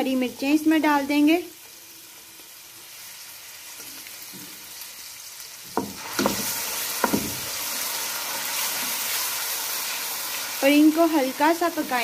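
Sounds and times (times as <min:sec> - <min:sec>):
food sizzling in hot oil: 0:00.0 - 0:12.0
wooden spoon knocking on pan: 0:05.7 - 0:07.5.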